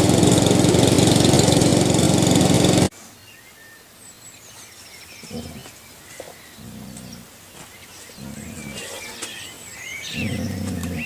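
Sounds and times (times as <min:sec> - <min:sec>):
small birds chirping: 0:02.9 - 0:11.0
dogs play-growling: 0:05.2 - 0:07.3, 0:08.0 - 0:09.4, 0:10.0 - 0:11.0.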